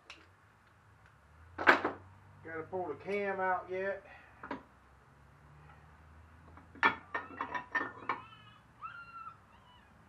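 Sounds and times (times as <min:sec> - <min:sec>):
metal engine parts clinking: 0:06.5 - 0:08.2.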